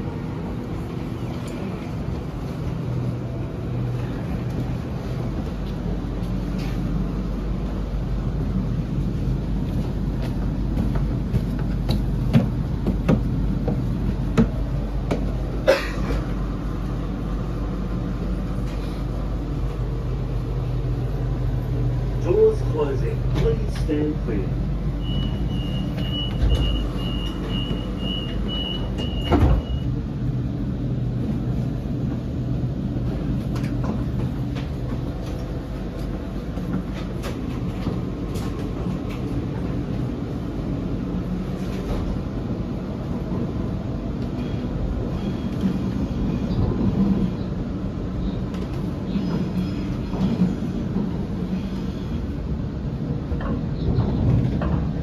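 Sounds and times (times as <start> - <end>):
train running rumble: 0.0 - 55.0
train doors closing thump: 10.2 - 16.4, 25.4 - 30.0
door-warning beeps: 25.0 - 30.0.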